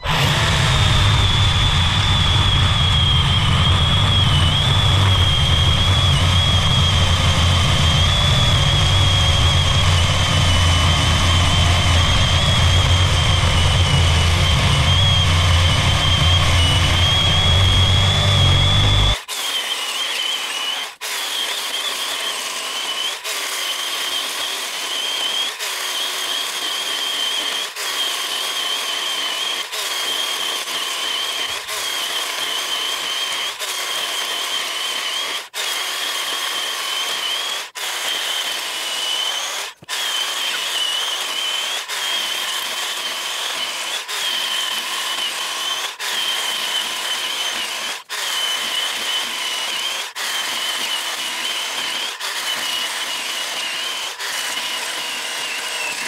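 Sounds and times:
electric chainsaw cutting log: 0.0s - 56.0s.

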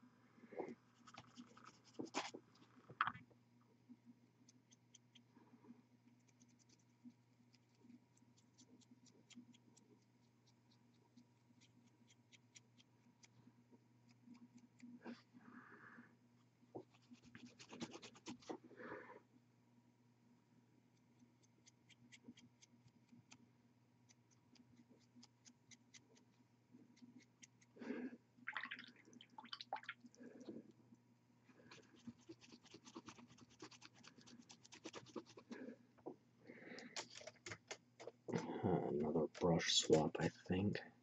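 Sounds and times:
dry brush scratching strokes: 0.9s - 2.4s, 16.8s - 18.7s, 31.7s - 35.7s.

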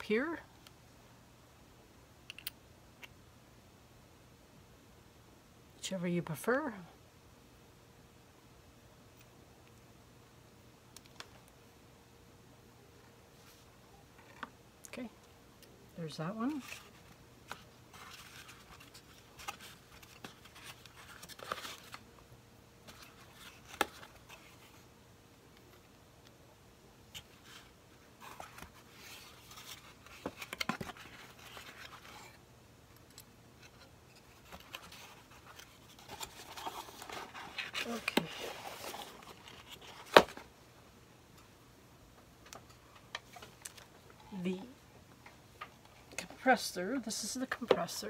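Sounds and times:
cardboard box rustling: 16.5s - 22.0s, 33.7s - 40.5s
small handling clicks and rustles: 27.1s - 40.5s, 42.4s - 44.6s.

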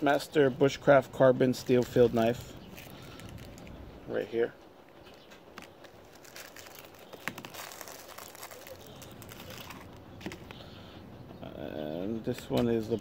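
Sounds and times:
packaging crinkling and rustling: 1.5s - 3.8s, 5.5s - 10.6s.

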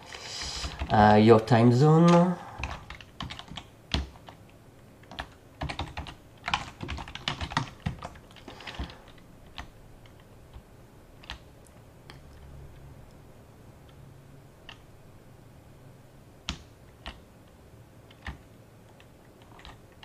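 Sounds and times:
typing on computer keyboard: 0.6s - 1.0s, 2.0s - 4.4s, 5.0s - 10.6s, 16.5s - 17.3s, 18.1s - 20.0s.

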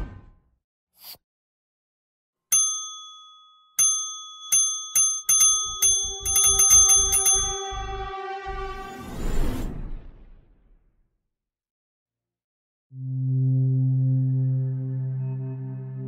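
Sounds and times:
bright bell-like dings: 2.5s - 8.1s.

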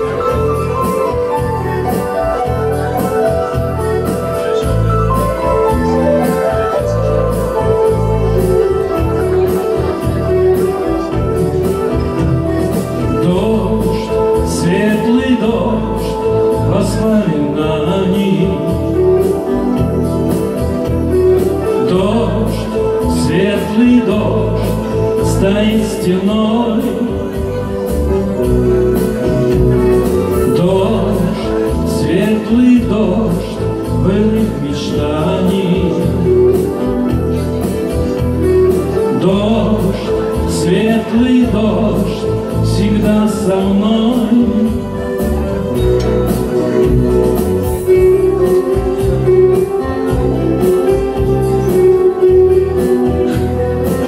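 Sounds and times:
acoustic guitar: 0.0s - 54.0s
man singing: 0.0s - 54.0s
sustained backing chords: 0.0s - 54.0s.

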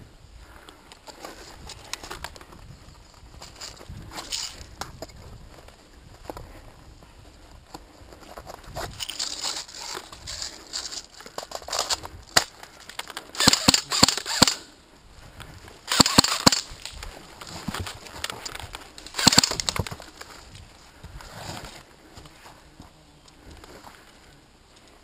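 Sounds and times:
airsoft guns firing: 13.4s - 14.7s, 15.9s - 16.7s, 19.1s - 19.7s.

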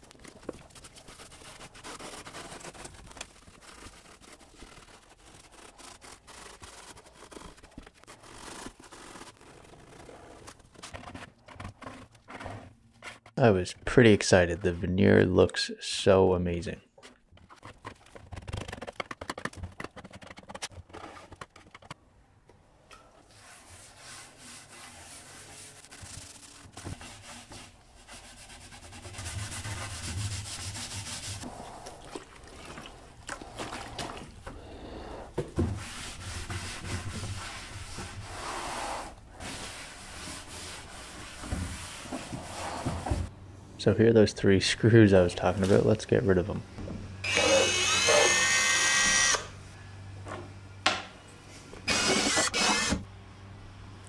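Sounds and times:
hand scrubbing wood: 0.2s - 15.0s, 23.3s - 43.3s.

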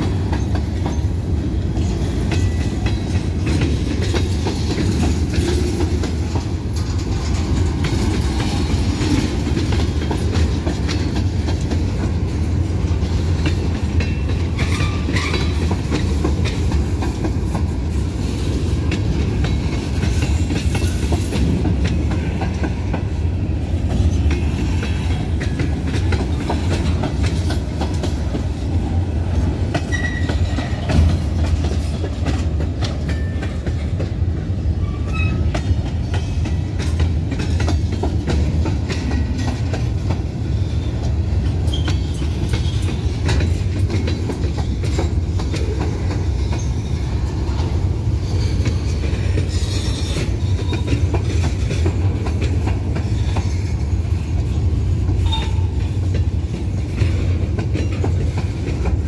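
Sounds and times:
train wheels rumbling on rail: 0.0s - 59.0s
wheels clacking over rail joints: 0.0s - 59.0s
high wheel squeaks: 29.8s - 30.9s, 41.7s - 43.0s, 48.2s - 51.0s.

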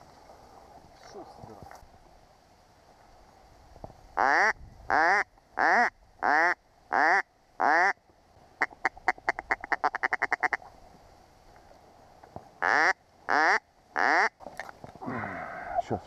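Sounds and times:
duck call quacking: 4.2s - 8.0s, 12.6s - 14.3s.

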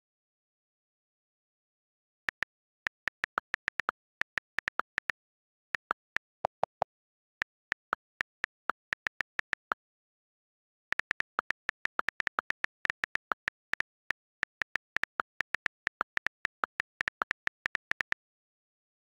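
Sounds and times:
on-screen keyboard key clicks: 2.4s - 5.1s.

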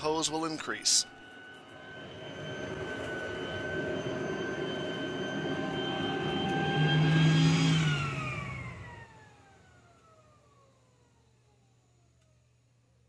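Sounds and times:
vacuum motor whine: 0.0s - 13.0s
deep hum: 1.1s - 9.0s.

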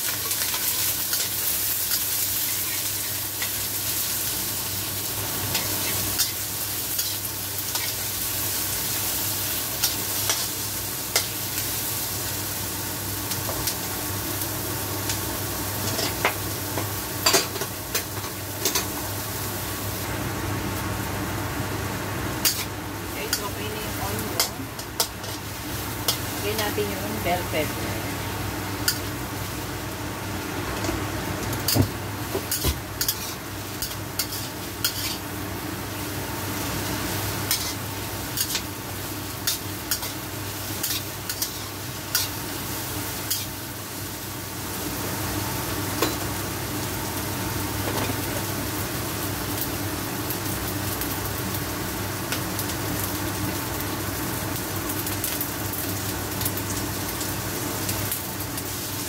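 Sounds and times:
vegetables sizzling in hot oil: 0.0s - 59.0s
metal spatula scraping a wok: 32.5s - 35.2s, 37.5s - 37.8s.

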